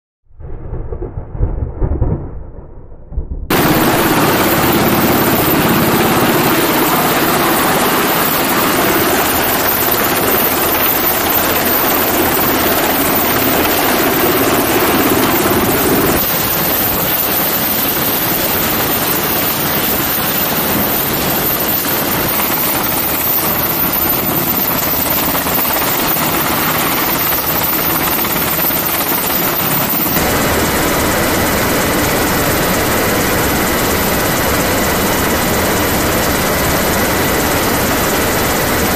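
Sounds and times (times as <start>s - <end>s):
high whining tones: 3.5s - 31.6s
helicopter hovering: 3.5s - 38.9s.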